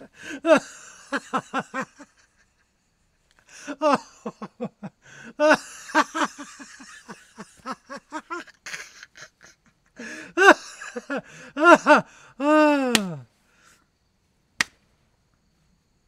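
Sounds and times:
person laughing hard: 0.0s - 2.8s, 3.5s - 13.2s.

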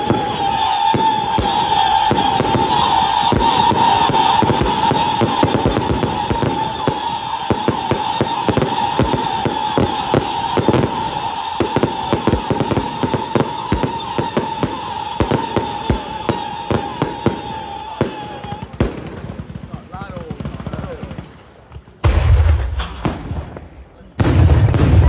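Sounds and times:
high whistle: 0.0s - 18.7s
fireworks banging: 0.0s - 25.0s.

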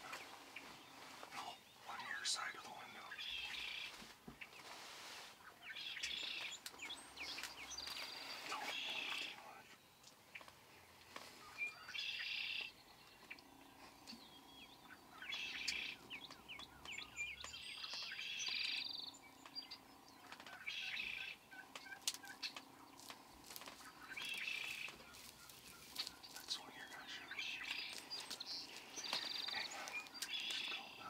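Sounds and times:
turkeys gobbling: 20.2s - 28.0s.

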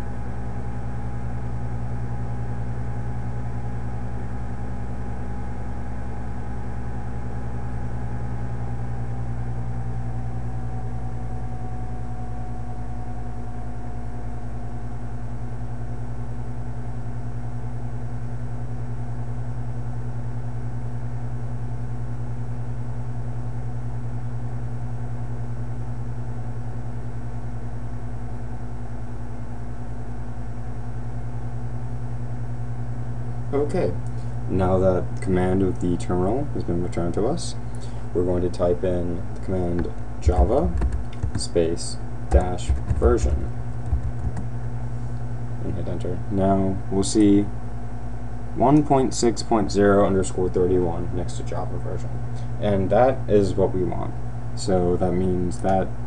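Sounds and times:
faint whining tone: 0.0s - 17.8s
low machine hum: 0.0s - 56.0s.

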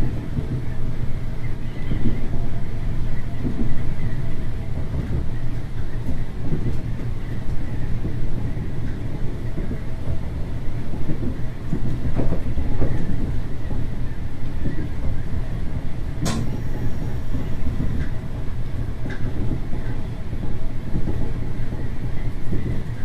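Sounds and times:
railcar engine rumble: 0.0s - 23.0s
wheels knocking on rails: 4.5s - 23.0s.

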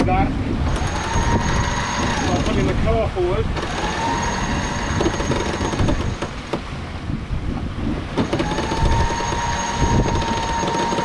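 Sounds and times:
wind and water rushing: 0.0s - 11.0s
electric winch whirring: 0.7s - 2.7s, 3.6s - 6.5s, 8.2s - 11.0s.

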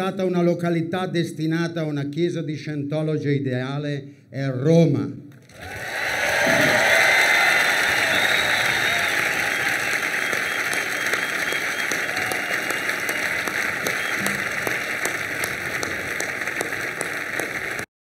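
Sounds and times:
large crowd applauding: 5.5s - 17.9s.

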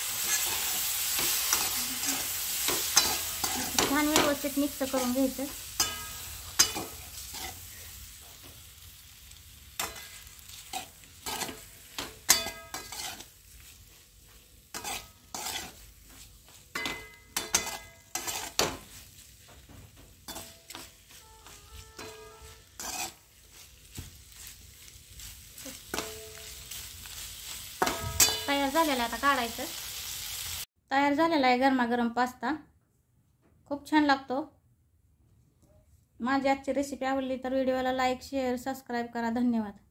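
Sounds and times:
spatula scraping a metal pan: 0.0s - 8.4s, 9.8s - 13.7s, 14.7s - 16.0s, 16.7s - 28.6s
hot oil sizzling: 0.0s - 30.7s.

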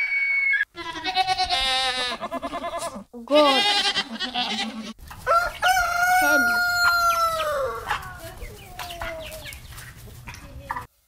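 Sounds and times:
rooster crowing: 5.2s - 8.1s.

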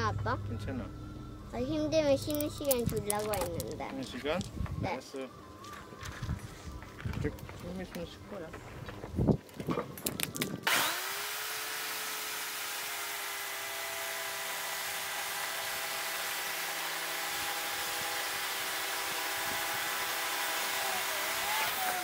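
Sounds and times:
electric chainsaw cutting wood: 10.6s - 22.0s.

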